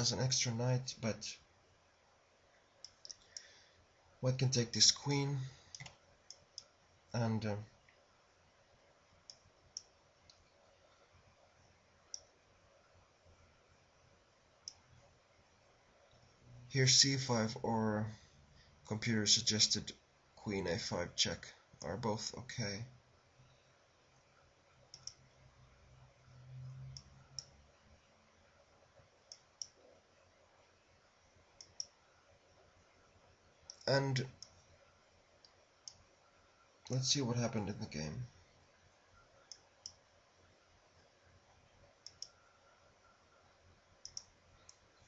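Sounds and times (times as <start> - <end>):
faint room hiss: 0.0 - 45.0
computer mouse clicking: 5.7 - 6.7, 14.6 - 14.8, 24.9 - 25.2, 26.9 - 27.6, 29.3 - 29.8, 31.6 - 32.0, 39.4 - 40.0, 42.0 - 42.5, 44.0 - 44.9.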